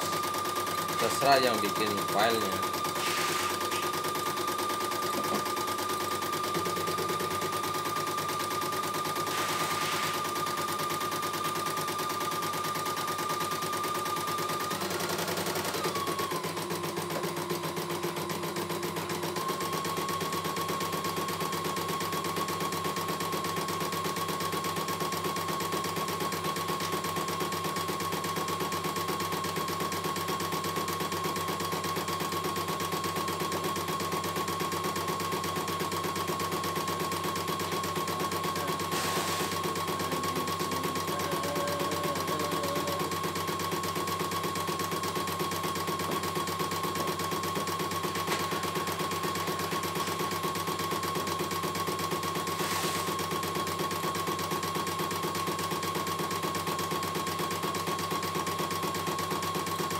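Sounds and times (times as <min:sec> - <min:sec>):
motor whine: 0:00.0 - 0:05.5.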